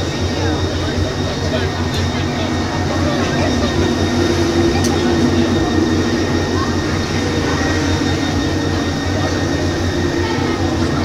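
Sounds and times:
loud machine rumble: 0:00.0 - 0:11.0
murmur of voices: 0:00.0 - 0:11.0.

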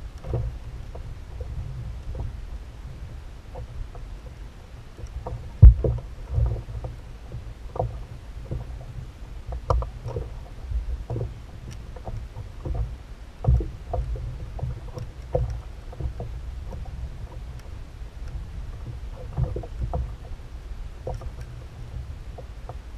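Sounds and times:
water rumbling against hull: 0:00.0 - 0:22.9.

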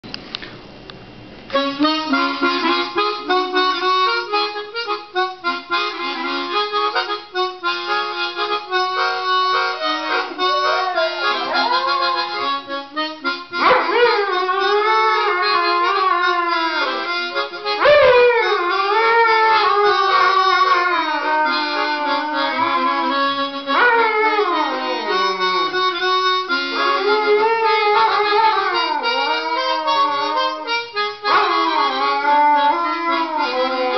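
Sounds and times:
harmonica melody: 0:01.5 - 0:33.9
dog howling: 0:09.8 - 0:12.8, 0:13.6 - 0:17.1, 0:17.8 - 0:25.8, 0:26.8 - 0:33.9.

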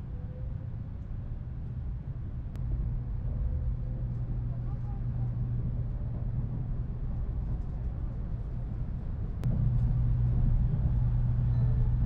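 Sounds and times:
train cabin rumble and hum: 0:00.0 - 0:12.0.

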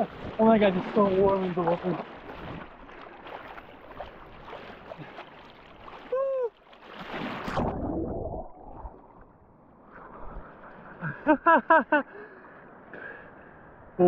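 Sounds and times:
sea water sloshing and splashing: 0:00.0 - 0:11.0.

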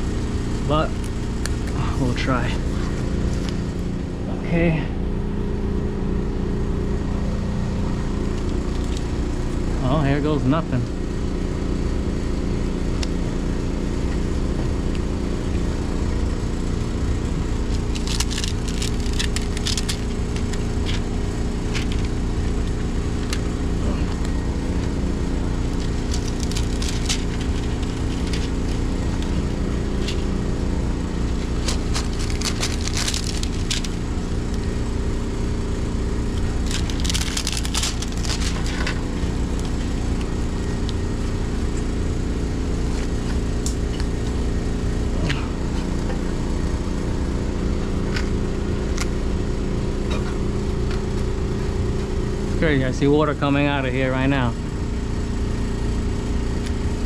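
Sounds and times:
machinery humming: 0:00.0 - 0:57.0
tape crackling and crinkling: 0:08.3 - 0:09.6, 0:17.3 - 0:35.0, 0:35.9 - 0:41.3.

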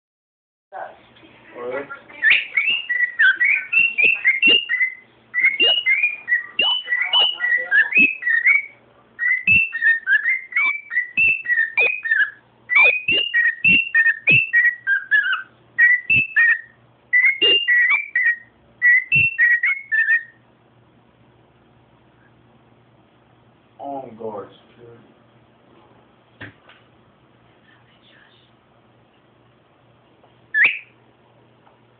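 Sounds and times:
cockatiel whistling: 0:02.2 - 0:20.4, 0:30.5 - 0:31.0.

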